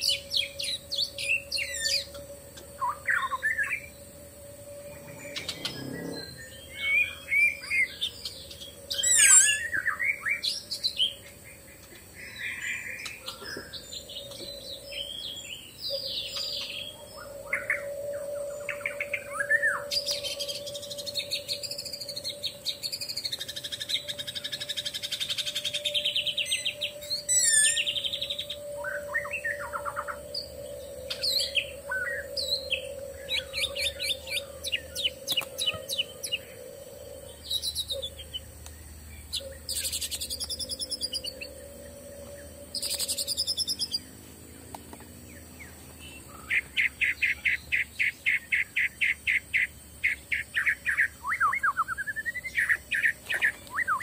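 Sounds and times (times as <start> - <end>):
steady hum: 0.0 - 9.0, 16.9 - 46.7
rapid pulsing bird call: 0.0 - 44.3, 45.3 - 54.0
birds chirping and calling: 0.0 - 54.0.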